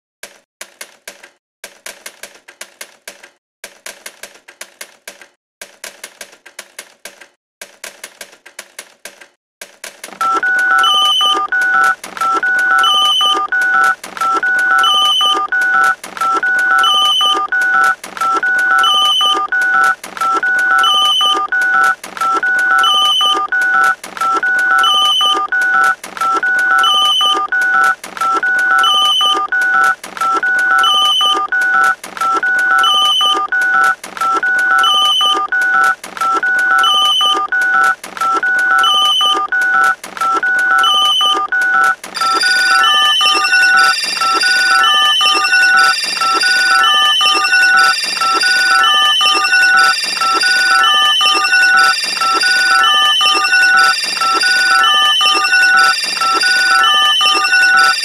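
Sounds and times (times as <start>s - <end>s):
higher beep: 10.2s - 58.0s
repeating electronic beeps: 10.2s - 58.0s.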